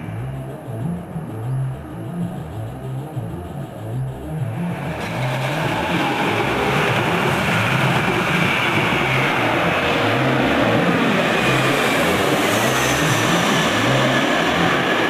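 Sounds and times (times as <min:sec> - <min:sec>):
high whine falling in pitch: 0:00.0 - 0:15.0
jet airliner passing overhead: 0:04.8 - 0:15.0.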